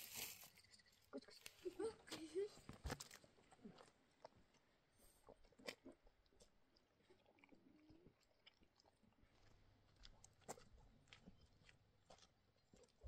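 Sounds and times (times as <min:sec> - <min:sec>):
dog chewing and crunching: 0:05.2 - 0:13.0.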